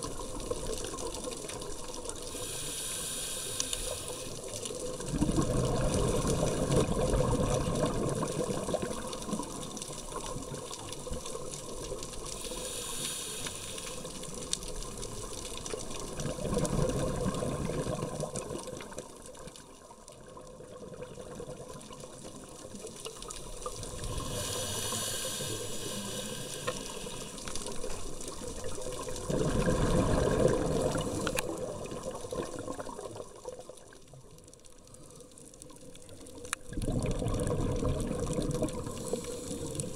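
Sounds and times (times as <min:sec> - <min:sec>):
regulator inhalation hiss: 0:02.3 - 0:04.4, 0:12.3 - 0:14.3, 0:23.4 - 0:27.8, 0:38.8 - 0:39.9
exhalation bubbling rumble: 0:04.8 - 0:10.7, 0:15.9 - 0:18.9, 0:28.4 - 0:33.6, 0:36.6 - 0:39.9.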